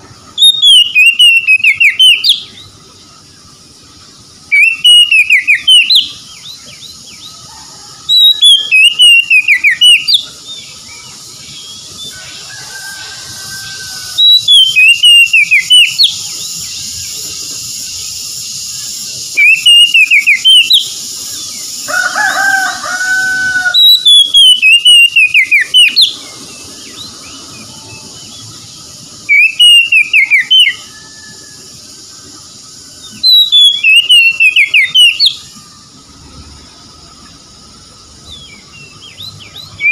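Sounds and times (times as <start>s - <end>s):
bird singing whistled phrases: 0.4s - 2.7s, 4.5s - 7.3s, 8.1s - 12.2s, 14.1s - 21.7s, 23.6s - 28.5s, 29.2s - 31.3s, 33.0s - 35.5s, 38.3s - 39.9s.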